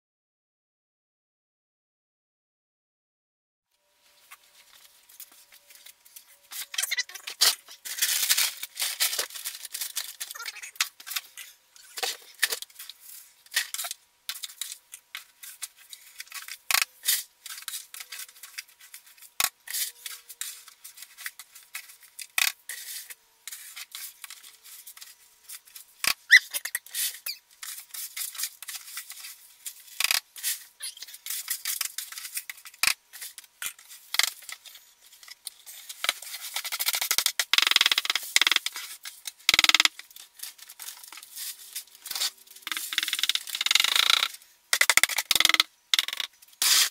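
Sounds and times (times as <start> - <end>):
clumps rattling into bag: 4.6 - 22.1.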